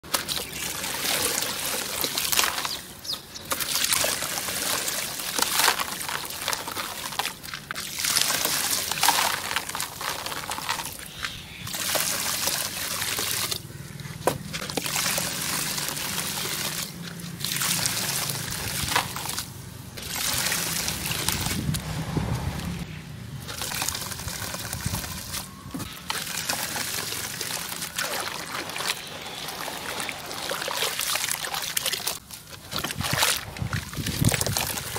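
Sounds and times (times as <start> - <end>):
hands sloshing wet mass: 0.1 - 34.9
crumbled material pouring into water: 3.5 - 11.1, 14.6 - 21.8, 23.5 - 25.4, 26.0 - 32.2.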